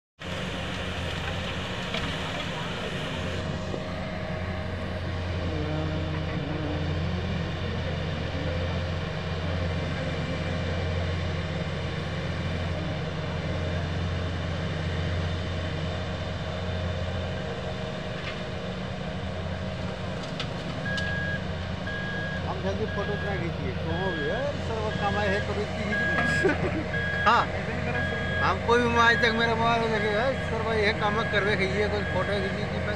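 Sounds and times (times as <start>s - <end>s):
excavator diesel engines droning: 0.2s - 32.9s
high electronic beeping: 20.9s - 32.4s.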